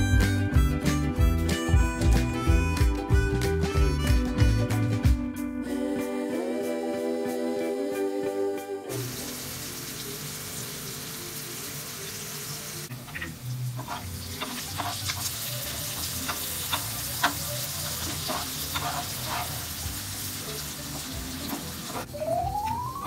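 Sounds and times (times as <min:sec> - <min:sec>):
prawns sizzling in hot oil: 0:08.9 - 0:22.1
spatula scraping and knocking pan: 0:13.1 - 0:19.9.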